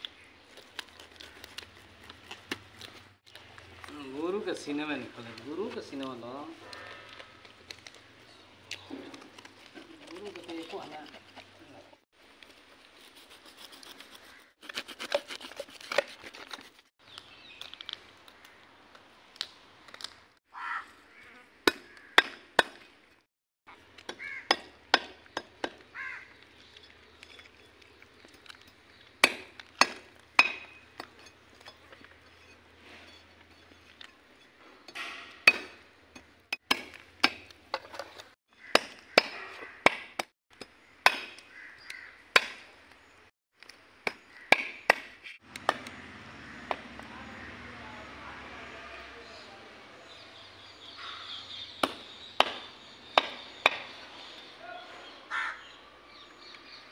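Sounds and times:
knife scraping fish scales: 13.0 - 16.9.

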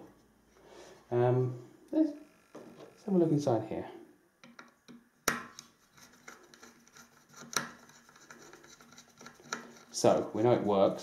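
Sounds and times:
screwdriver clicking and scraping: 5.5 - 10.0.

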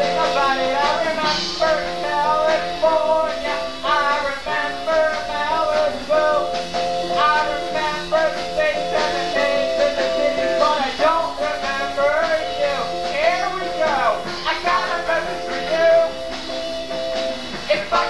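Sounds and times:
person singing: 0.0 - 16.4, 17.6 - 18.0.

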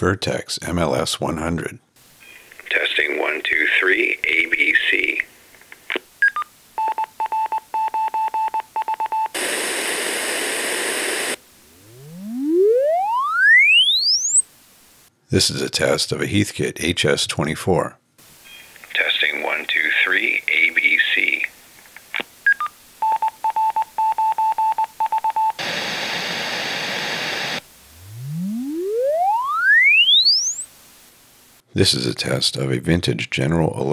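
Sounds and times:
pink noise hiss: 2.0 - 6.8, 9.3 - 13.0, 14.4 - 15.2, 18.2 - 23.1, 25.6 - 29.4, 30.6 - 31.7
rising sine sweep: 10.7 - 14.4, 25.6 - 30.7.

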